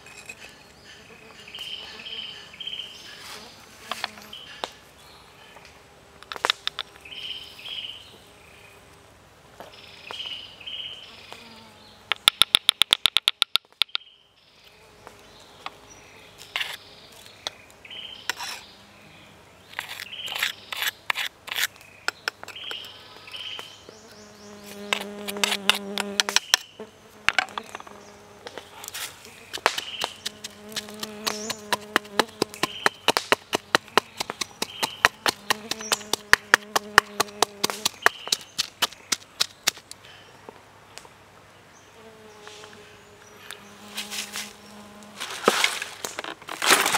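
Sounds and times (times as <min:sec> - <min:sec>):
fly buzzing: 0:00.3 - 0:04.8, 0:10.7 - 0:12.8, 0:23.6 - 0:39.2, 0:42.0 - 0:46.0
pestle knocking in stone mortar: 0:29.6 - 0:39.8.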